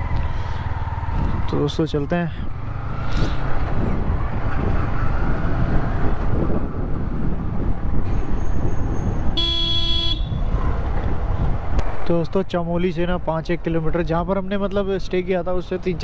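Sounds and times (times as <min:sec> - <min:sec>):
motorcycle rumbling: 0:00.0 - 0:16.0.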